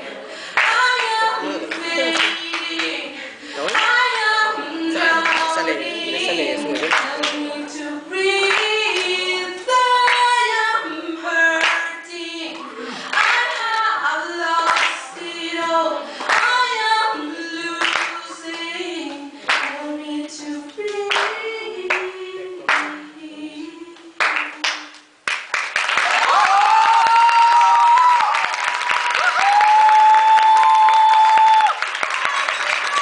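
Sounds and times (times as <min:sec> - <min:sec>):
woman singing a cappella: 0:00.5 - 0:25.1
hand claps: 0:17.8 - 0:18.1, 0:21.1 - 0:21.3, 0:24.2 - 0:33.0.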